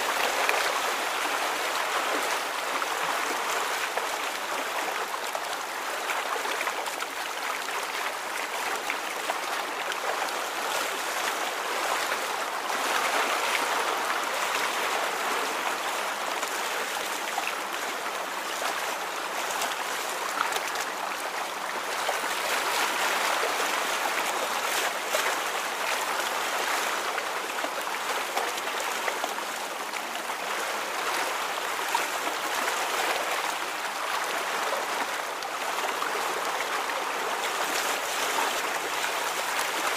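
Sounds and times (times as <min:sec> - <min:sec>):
water flowing and babbling: 0:00.0 - 0:39.9.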